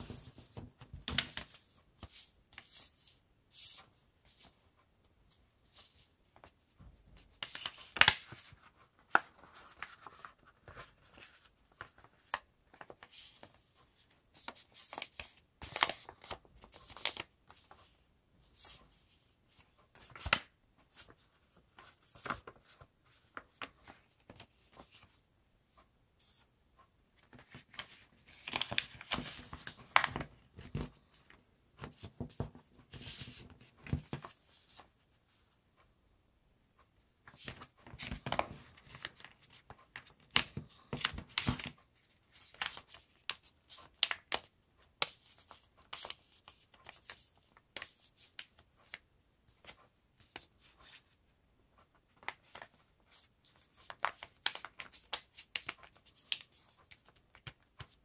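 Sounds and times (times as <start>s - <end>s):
paper being folded and creased: 0.0s - 4.6s, 7.2s - 25.2s, 27.2s - 30.9s, 37.3s - 49.0s, 51.8s - 58.0s.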